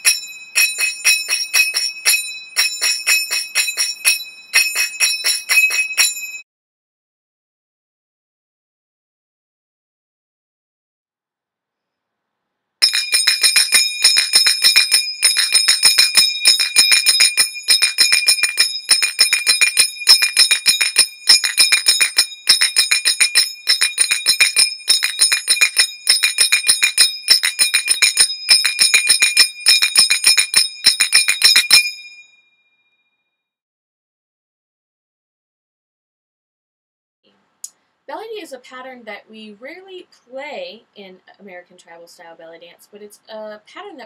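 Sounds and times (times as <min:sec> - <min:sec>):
finger cymbals ringing strikes: 0:00.0 - 0:06.4, 0:12.8 - 0:32.3.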